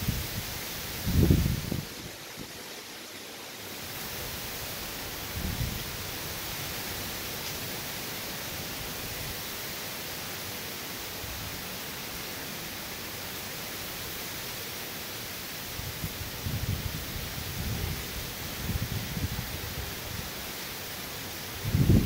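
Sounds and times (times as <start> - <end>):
gusty wind rumbles: 0.0 - 2.2, 5.2 - 6.2, 15.8 - 20.3, 21.6 - 22.0
rain and wind hiss: 0.0 - 22.0.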